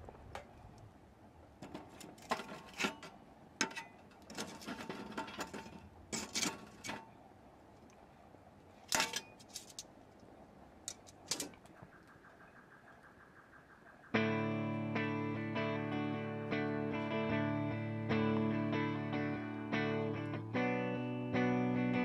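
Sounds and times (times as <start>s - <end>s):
metal tongs clinking on charcoal: 1.9s - 7.0s, 8.9s - 9.8s.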